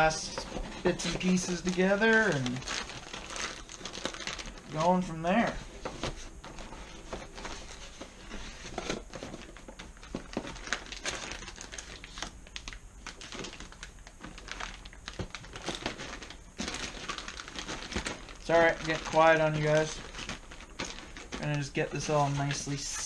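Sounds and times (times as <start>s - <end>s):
plastic bags crinkling: 0.0s - 23.0s
small crackles and clicks: 8.8s - 23.0s.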